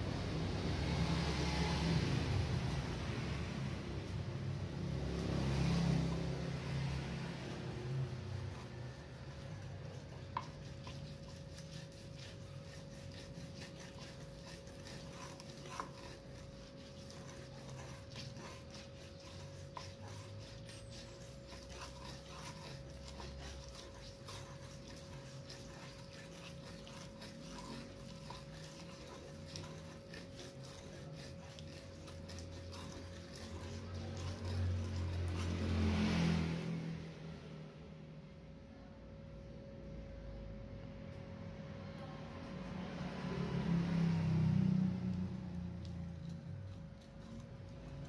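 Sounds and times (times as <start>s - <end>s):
pestle scraping stone mortar: 4.0s - 36.5s, 45.5s - 48.0s.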